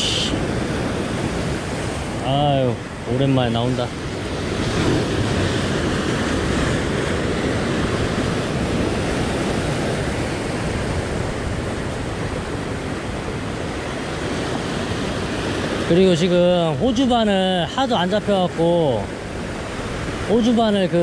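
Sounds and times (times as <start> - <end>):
wind on microphone: 0.0 - 15.9
surf breaking over rocks: 0.0 - 21.0.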